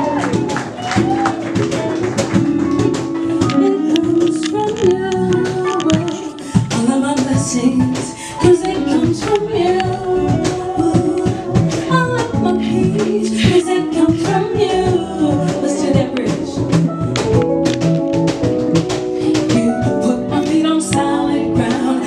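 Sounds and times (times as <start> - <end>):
steady beat: 0.0 - 7.9, 8.5 - 22.0
guitar: 0.0 - 22.0
women singing into microphones: 3.2 - 16.9, 19.2 - 22.0.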